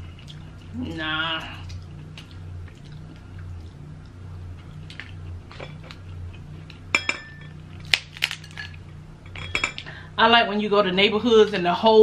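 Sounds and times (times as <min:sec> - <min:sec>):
small eating clicks: 0:00.0 - 0:06.8
steady low hum: 0:00.0 - 0:12.0
crab shell cracking: 0:07.7 - 0:08.8.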